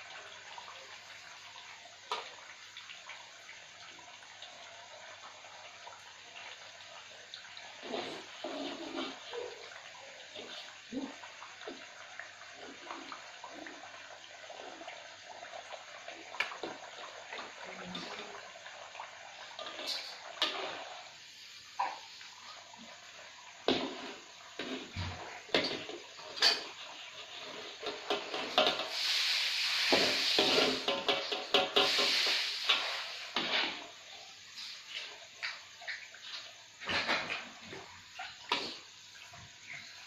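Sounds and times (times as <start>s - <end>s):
food deep-frying in oil: 0.0s - 40.0s
metal spatula scraping a wok: 25.7s - 33.9s.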